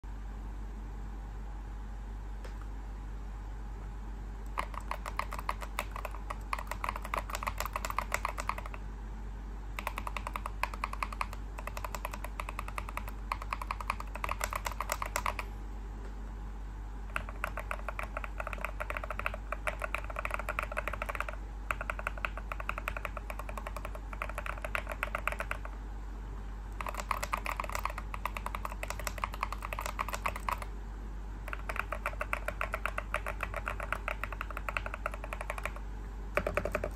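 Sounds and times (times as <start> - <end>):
mechanical keyboard typing: 4.4 - 8.8, 9.8 - 15.5, 17.1 - 25.8, 26.7 - 30.7, 31.4 - 36.9.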